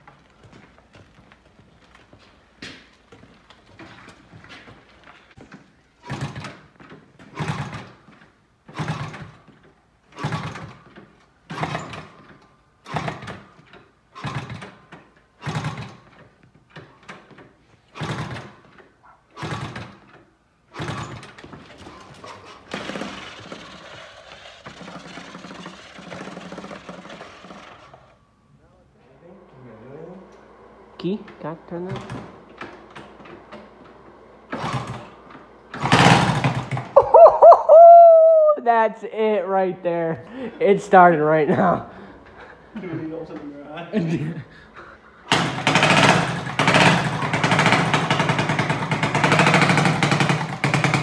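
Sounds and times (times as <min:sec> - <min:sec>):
engine being kick-started: 0:05.4 - 0:28.2, 0:30.3 - 0:37.4, 0:45.2 - 0:51.0.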